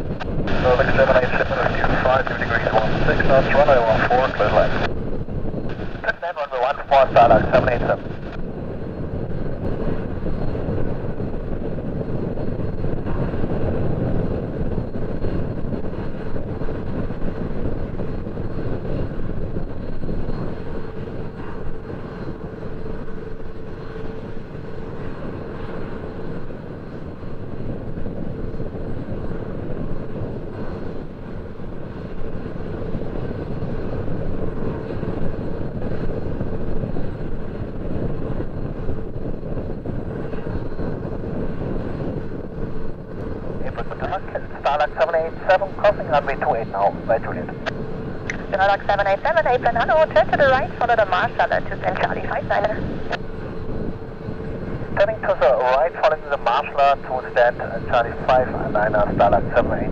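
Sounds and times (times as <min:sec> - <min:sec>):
jet engines droning: 0:00.0 - 0:59.9.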